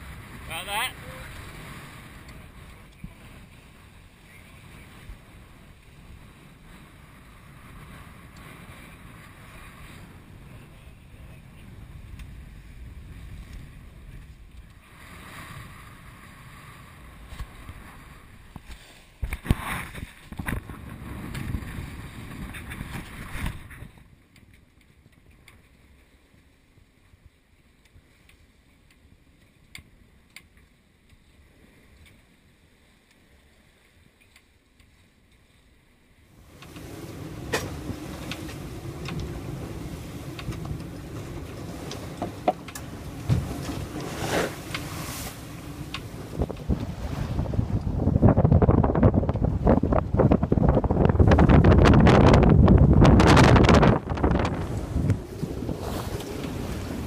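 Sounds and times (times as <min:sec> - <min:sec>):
water rushing along a hull: 0:00.0 - 0:57.0
water splashing: 0:36.4 - 0:57.0
wind buffeting microphone: 0:36.4 - 0:57.0.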